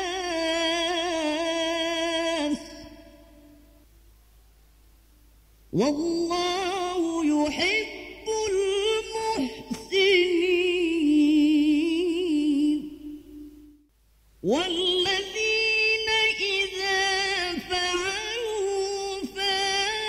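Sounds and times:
man reciting melodically: 0.0 - 3.7, 5.7 - 13.8, 14.4 - 20.0.

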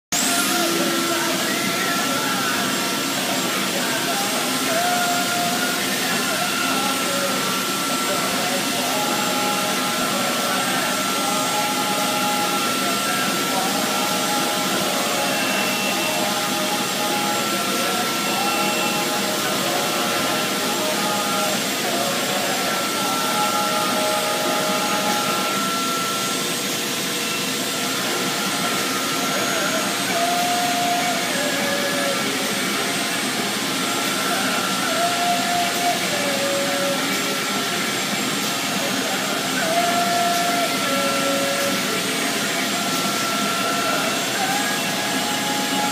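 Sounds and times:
high whine: 0.1 - 45.9
industrial machinery blower noise: 0.2 - 45.9.

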